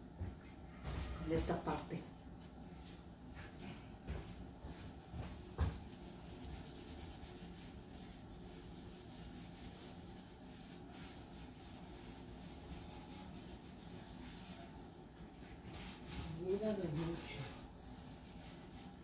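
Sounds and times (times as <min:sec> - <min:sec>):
sponge scrubbing stove top: 0:05.0 - 0:19.0.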